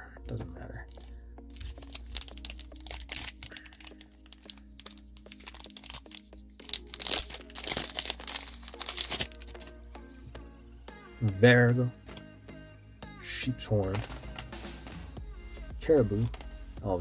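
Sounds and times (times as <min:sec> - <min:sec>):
quiet background music: 0:00.0 - 0:17.0
foil wrapper crinkling: 0:00.9 - 0:09.7.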